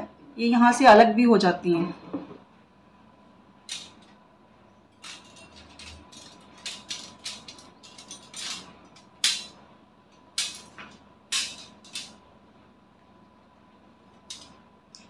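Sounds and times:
metal shelf clinking and rattling: 3.7s - 4.1s, 4.9s - 9.6s, 10.3s - 12.2s, 14.3s - 15.0s.

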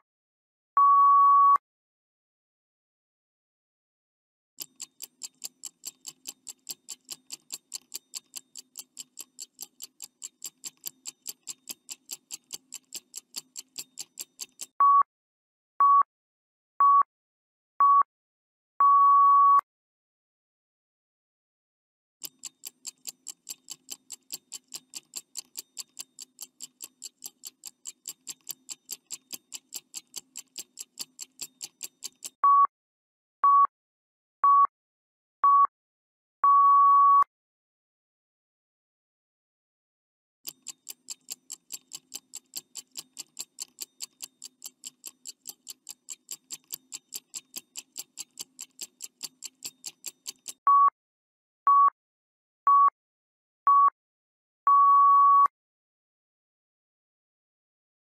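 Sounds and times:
long beep: 0.8s - 1.6s, 18.8s - 19.6s, 36.5s - 37.3s, 54.7s - 55.5s
short beeps: 0.8s - 1.6s, 18.8s - 19.6s, 32.4s - 32.7s, 34.4s - 34.7s, 36.4s - 37.3s, 50.7s - 51.0s, 51.7s - 52.0s, 52.7s - 52.9s, 53.7s - 54.0s, 54.7s - 55.5s
clock ticking fast: 4.6s - 14.8s, 22.2s - 32.4s, 40.5s - 50.6s.

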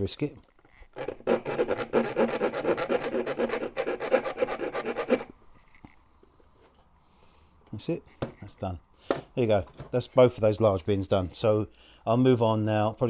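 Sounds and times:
hand file rasping on brass: 1.0s - 5.3s.

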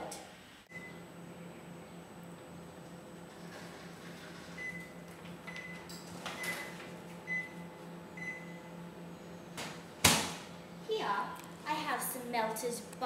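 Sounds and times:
microwave beeps: 0.7s - 1.1s, 4.5s - 9.6s.

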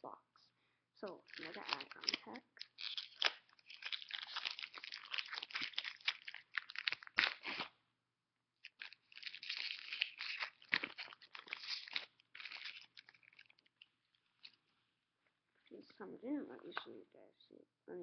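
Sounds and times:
foil wrapper crinkling and tearing: 1.1s - 7.7s, 8.6s - 14.6s.

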